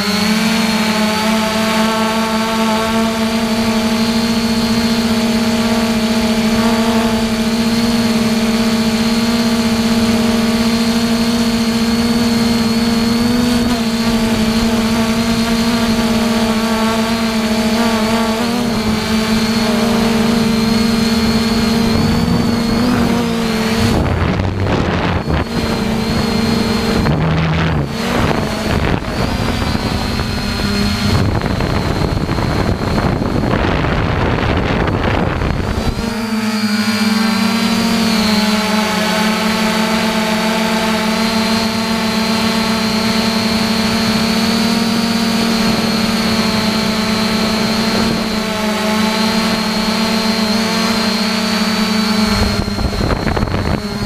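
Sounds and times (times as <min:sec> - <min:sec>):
drone propellers humming: 0:00.0 - 0:54.0
wind buffeting microphone: 0:12.3 - 0:38.8, 0:52.1 - 0:54.0.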